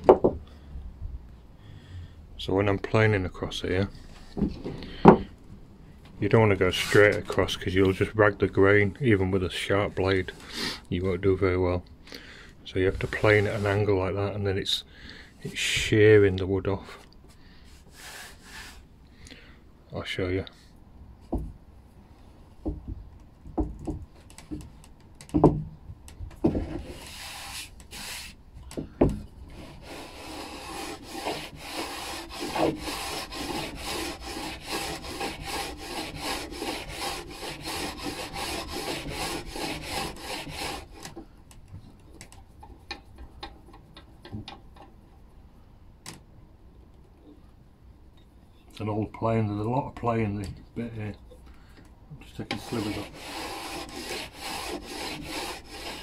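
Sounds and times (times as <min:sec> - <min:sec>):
knocks of plane and board: 0:00.0 - 0:00.4, 0:22.6 - 0:25.7, 0:26.3 - 0:26.8
hand plane shearing wood shavings: 0:26.7 - 0:28.4, 0:29.5 - 0:41.2, 0:52.4 - 0:56.0.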